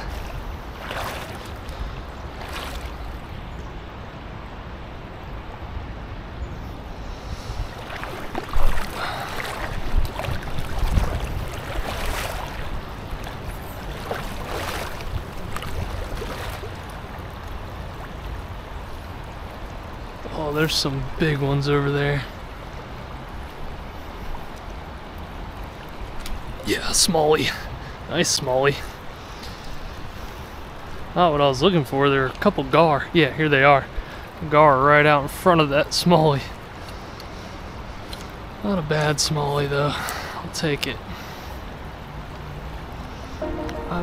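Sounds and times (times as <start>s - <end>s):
river water lapping: 0.0s - 4.3s, 6.5s - 32.9s, 39.6s - 44.0s
wind rumbling on microphone: 0.0s - 20.3s
brief louder noises: 43.4s - 44.0s.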